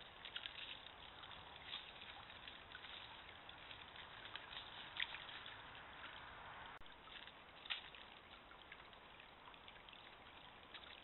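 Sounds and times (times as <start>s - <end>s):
small stream trickling: 0.0s - 11.0s.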